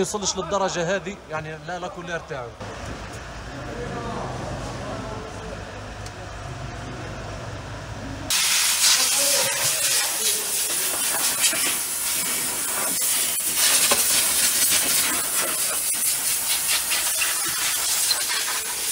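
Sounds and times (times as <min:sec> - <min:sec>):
air spray gun hissing: 0:08.3 - 0:18.9.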